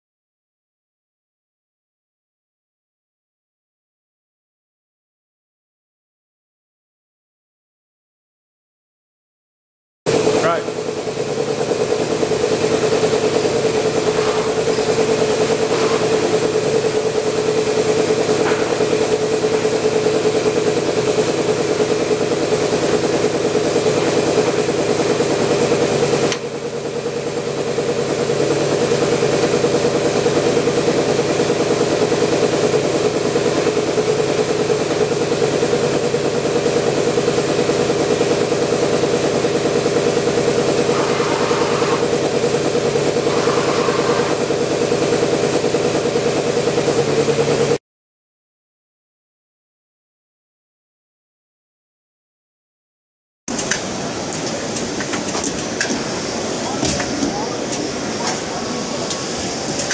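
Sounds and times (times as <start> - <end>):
printing machine humming: 10.1 - 47.8, 53.8 - 59.9.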